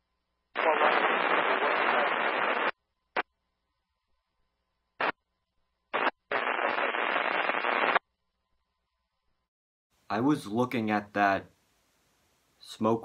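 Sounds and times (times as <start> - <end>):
steady static hiss: 0.5 - 3.2, 5.8 - 8.0, 9.9 - 13.0
radio static bursts: 0.6 - 3.3, 5.9 - 8.0.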